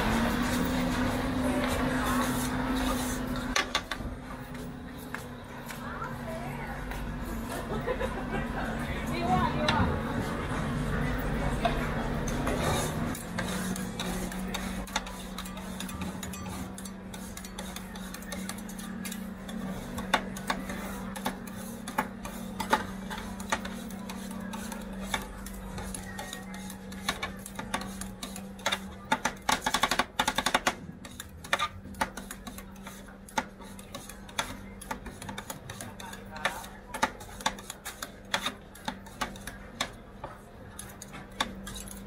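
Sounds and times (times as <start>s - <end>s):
metal spatulas scraping and tapping: 11.6s - 42.0s.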